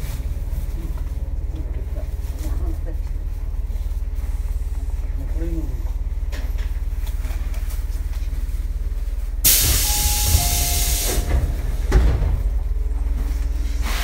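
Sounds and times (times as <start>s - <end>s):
compressed air hissing: 9.4s - 11.3s.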